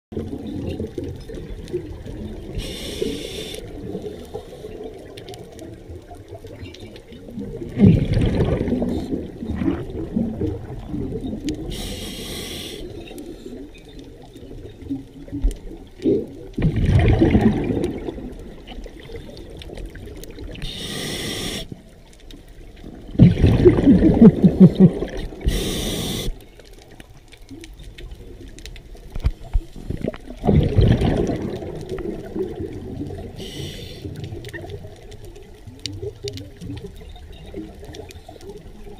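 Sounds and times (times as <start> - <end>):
exhaled air bubbling: 0.1 - 38.9
regulator inhale hiss: 2.6 - 4.8, 11.6 - 13.6, 20.6 - 21.8, 25.4 - 26.4, 33.4 - 34.2
low water wash: 7.1 - 13.5, 14.6 - 20.7, 22.8 - 26.4, 27.9 - 38.9.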